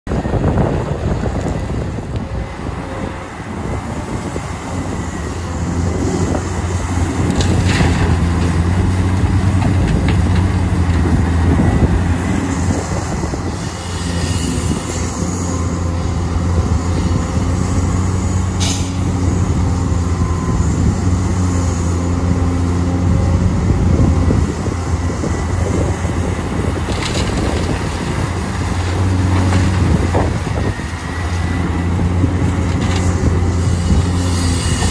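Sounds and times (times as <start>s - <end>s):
excavator diesel engine under load: 0.1s - 34.9s.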